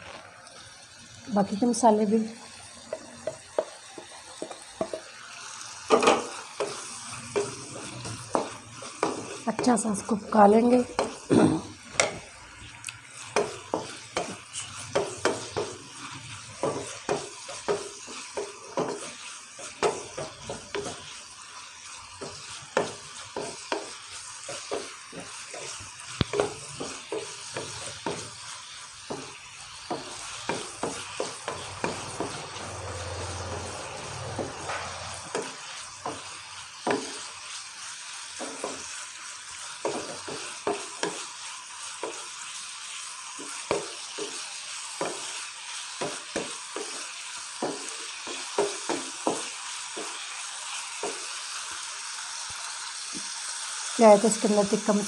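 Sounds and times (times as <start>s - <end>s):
chicken sizzling in oil: 0.0s - 55.0s
wooden spatula scraping pan: 5.9s - 11.3s, 13.2s - 37.7s, 38.3s - 51.4s.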